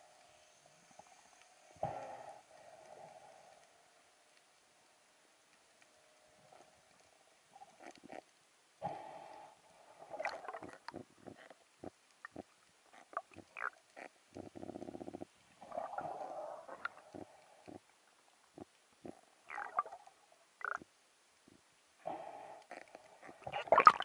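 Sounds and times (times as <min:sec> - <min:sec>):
fish grunting underwater: 0:08.8 - 0:17.9, 0:18.6 - 0:20.8, 0:22.0 - 0:24.0.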